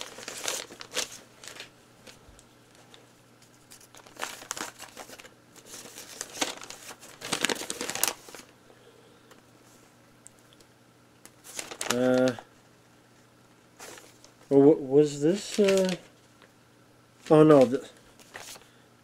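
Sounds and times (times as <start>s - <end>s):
paper rustling and crinkling: 0.0s - 8.5s, 11.3s - 12.5s, 13.8s - 14.5s, 15.2s - 16.5s, 17.2s - 18.7s.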